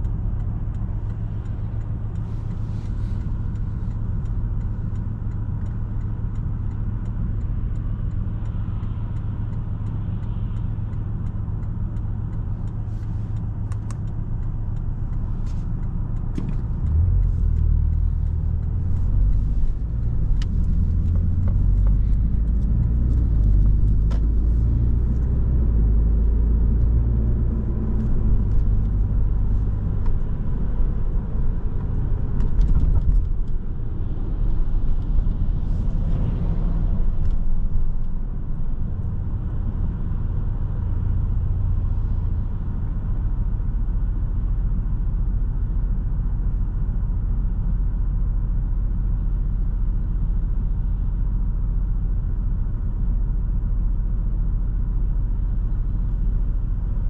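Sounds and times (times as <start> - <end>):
car engine running: 0.0 - 57.0.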